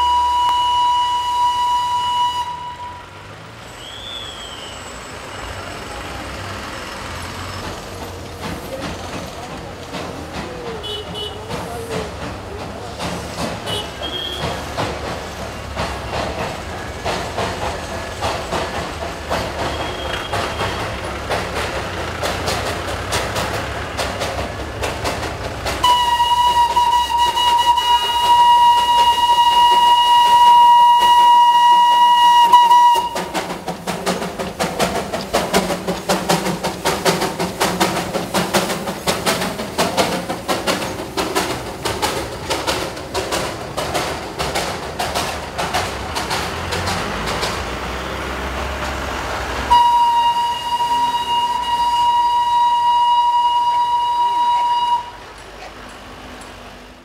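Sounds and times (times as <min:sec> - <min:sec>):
steam whistle: 0:00.0 - 0:05.0, 0:25.8 - 0:33.6, 0:49.7 - 0:55.3
steam locomotive exhaust beats: 0:00.0 - 0:57.0.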